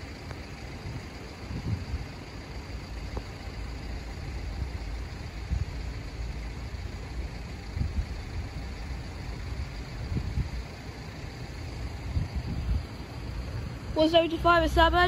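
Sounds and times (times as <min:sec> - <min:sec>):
wind buffeting microphone: 0:00.0 - 0:02.3, 0:07.6 - 0:14.0.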